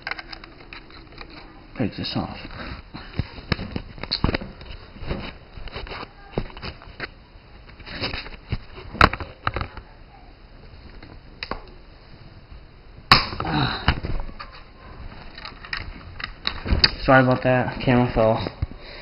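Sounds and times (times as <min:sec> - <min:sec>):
handling clicks and rustling: 0:00.0 - 0:09.9, 0:13.9 - 0:18.7.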